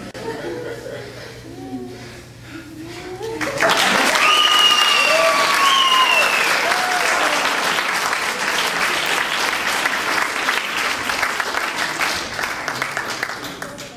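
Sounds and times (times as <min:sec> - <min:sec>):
audience applauding: 0:03.4 - 0:13.9
falling whoops: 0:03.6 - 0:07.6.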